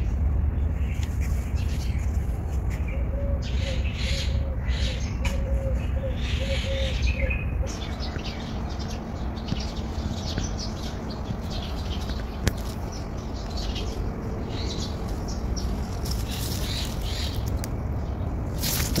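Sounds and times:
small birds chirping: 0:00.0 - 0:19.0
steady low rumble: 0:00.0 - 0:19.0.

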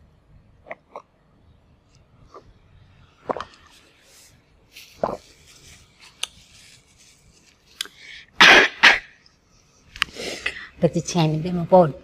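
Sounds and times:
short bursts of noise: 0:08.4 - 0:09.2.

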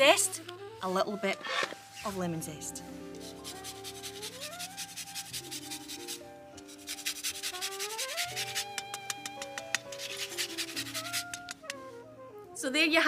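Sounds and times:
background music gliding notes: 0:00.0 - 0:13.0
zester grating lemon rind: 0:03.2 - 0:11.8.

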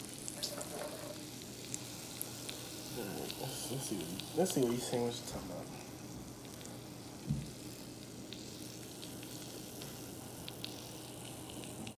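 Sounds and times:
sauce sizzling in a pan: 0:00.0 - 0:12.0.

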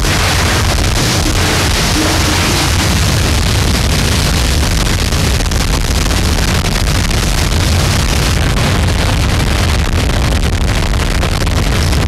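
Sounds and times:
harsh noise music: 0:00.0 - 0:04.2.

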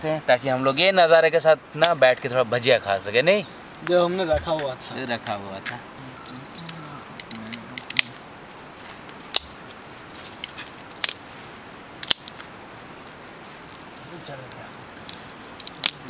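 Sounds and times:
faint steady fire hiss: 0:00.0 - 0:16.0
kindling snapping in campfire: 0:06.7 - 0:16.0.

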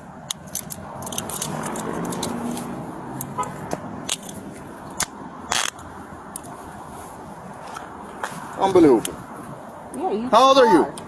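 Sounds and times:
faint traffic: 0:00.0 - 0:11.0
sharp clicks: 0:00.2 - 0:06.5.

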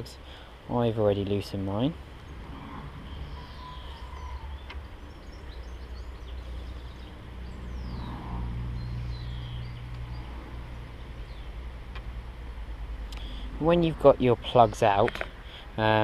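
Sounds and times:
birds chirping faintly: 0:00.0 - 0:16.0
distant vehicle engine hum: 0:00.0 - 0:16.0.

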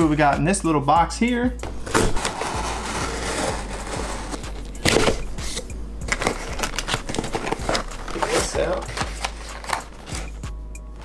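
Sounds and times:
cardboard ripping: 0:01.7 - 0:10.4
cardboard flaps rustling: 0:01.7 - 0:10.5
knife slitting packing tape: 0:01.9 - 0:10.4.

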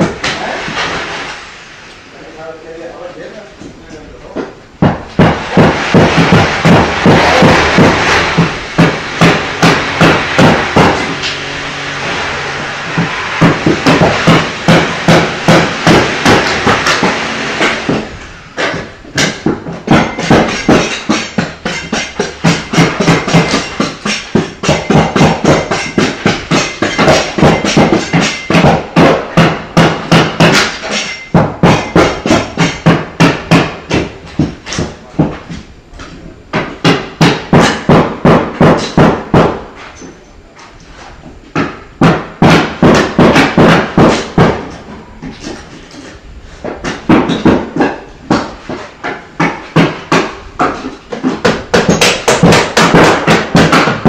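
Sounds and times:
hammer blows: 0:04.8 - 0:35.6.

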